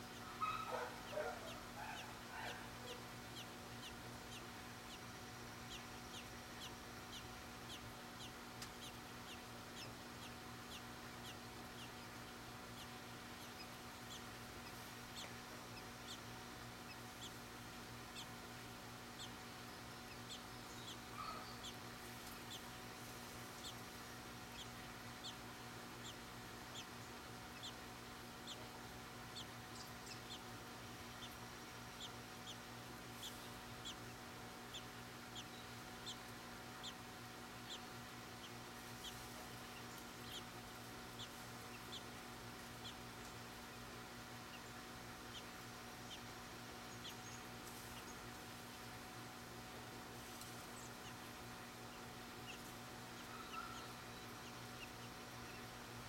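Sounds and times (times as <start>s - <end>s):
steady electrical hum: 0.0s - 56.0s
faint bird chirps: 0.1s - 17.4s, 19.2s - 23.0s, 53.2s - 55.7s.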